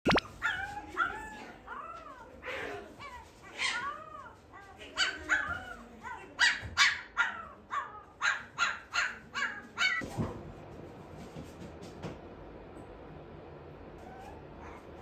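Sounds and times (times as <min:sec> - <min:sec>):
puppy yipping: 0:06.4 - 0:10.0.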